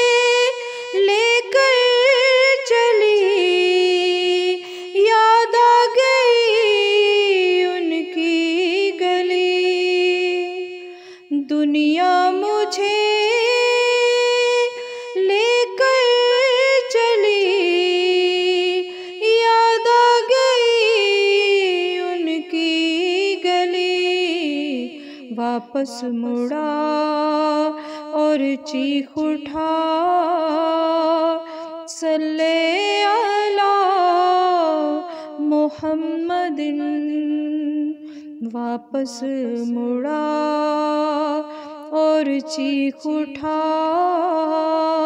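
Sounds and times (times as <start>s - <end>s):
woman singing devotional song: 0.0s - 45.0s.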